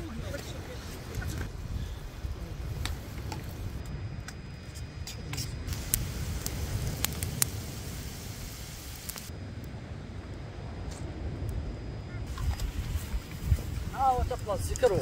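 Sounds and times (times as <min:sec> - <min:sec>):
campfire crackling: 0:00.0 - 0:15.0
sharp fire pops: 0:02.6 - 0:03.9, 0:05.3 - 0:09.3.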